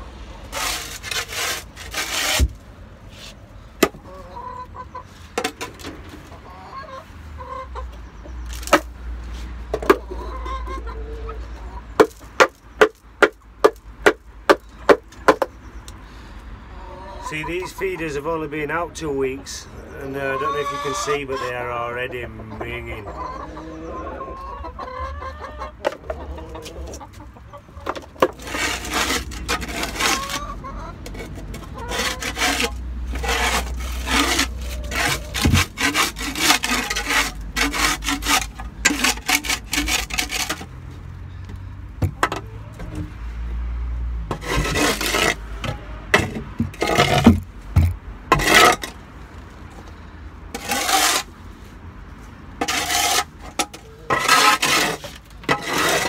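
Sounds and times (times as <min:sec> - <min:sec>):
shovel scraping concrete floor: 0:00.4 - 0:03.4, 0:28.2 - 0:30.5, 0:31.1 - 0:40.7, 0:44.3 - 0:45.5, 0:46.2 - 0:47.4, 0:48.3 - 0:49.0, 0:50.5 - 0:51.3, 0:52.6 - 0:56.0
hens clucking: 0:03.8 - 0:16.0, 0:16.6 - 0:43.2.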